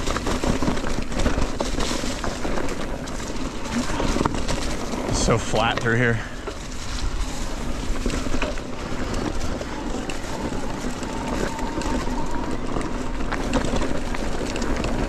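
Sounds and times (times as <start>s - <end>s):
bike rattling: 0.0s - 15.0s
tyres rumbling over dirt: 0.0s - 15.0s
wind rumbling on microphone: 0.0s - 15.0s.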